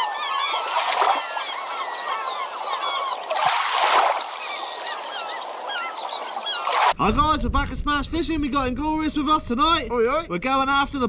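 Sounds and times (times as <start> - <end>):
flock of birds chirping: 0.0 - 7.0
splash-like rushes: 0.4 - 7.0.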